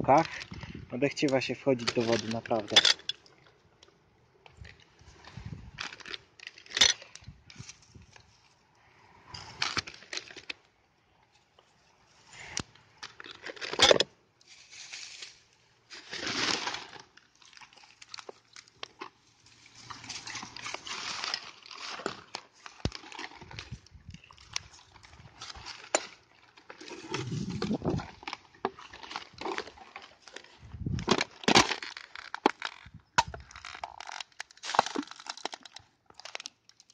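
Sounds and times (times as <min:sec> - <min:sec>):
hands rustling dry leaves: 0:14.4 - 0:18.1, 0:19.3 - 0:25.9.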